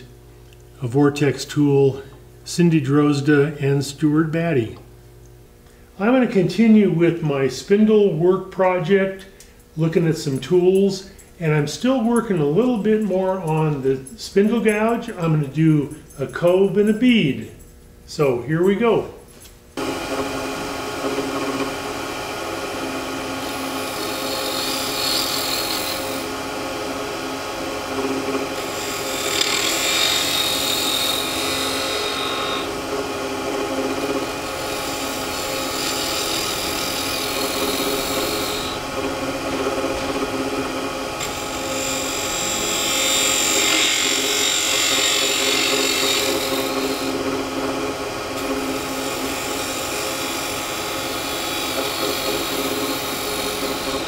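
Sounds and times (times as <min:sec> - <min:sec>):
gouge cutting wood hissing: 0:19.8 - 0:54.0
wood lathe humming: 0:19.8 - 0:54.0.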